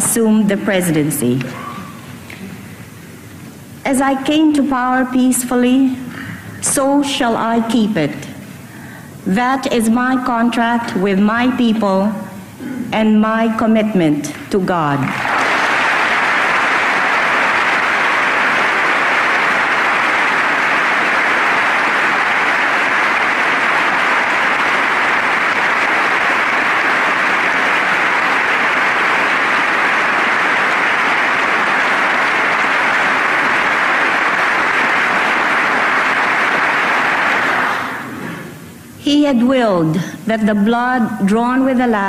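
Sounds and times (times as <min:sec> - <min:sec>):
large audience applauding: 0:15.1 - 0:38.4.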